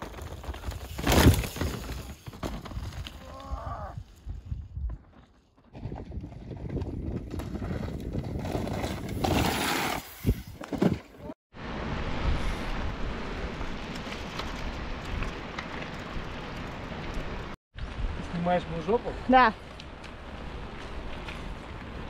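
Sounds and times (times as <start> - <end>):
bike tyres rattling over ground: 0.0 - 3.6, 4.4 - 11.0.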